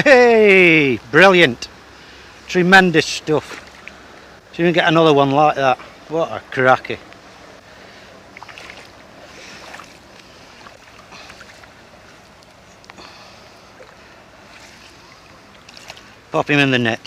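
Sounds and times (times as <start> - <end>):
water lapping at bank: 3.4 - 4.4, 7.7 - 16.4
rushing water: 7.9 - 17.0.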